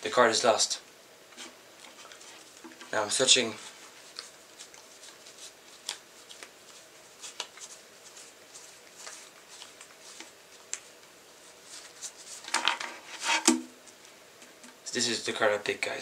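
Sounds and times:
playing cards flicking and sliding: 3.6s - 14.0s.

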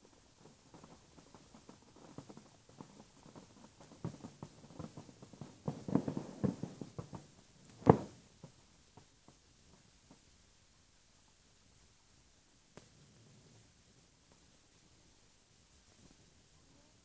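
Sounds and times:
distant fireworks bursting: 0.0s - 10.3s.

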